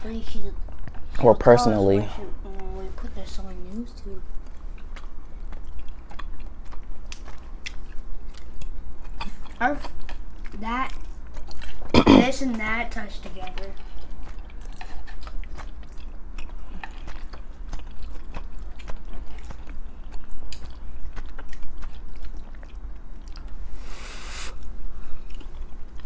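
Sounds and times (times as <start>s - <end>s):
steady low hum: 0.0s - 26.0s
person chewing: 4.3s - 12.5s, 13.6s - 26.0s
noodle slurp: 11.9s - 12.3s.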